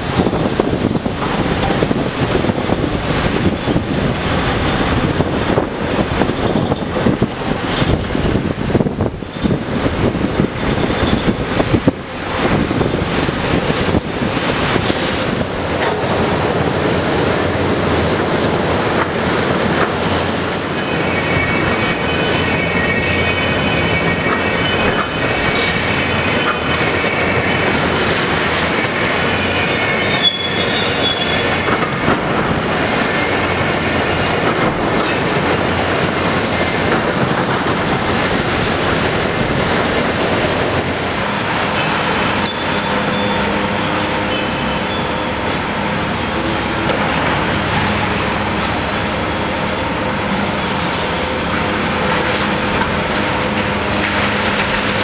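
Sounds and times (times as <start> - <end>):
diesel engines under load: 0.0 - 55.0
high-pitched metallic squeals: 4.2 - 5.0, 6.2 - 7.0, 20.0 - 34.2, 40.8 - 53.0.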